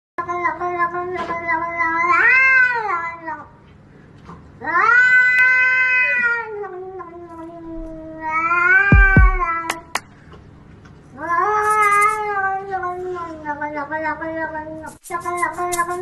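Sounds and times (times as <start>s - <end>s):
cat yowling: 4.6s - 9.6s
low thumps: 9.0s - 10.0s.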